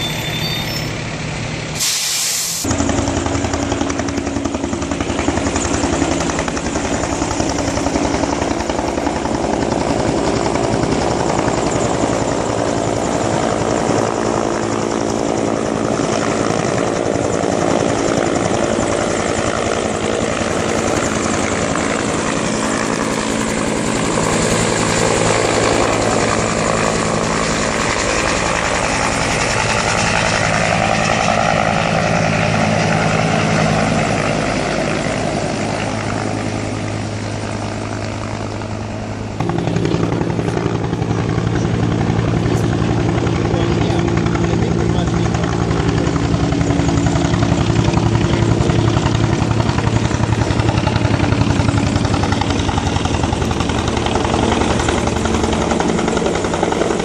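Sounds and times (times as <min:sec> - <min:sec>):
loud hiss: 0:01.7 - 0:02.7
helicopter rotor chopping: 0:02.6 - 0:57.0.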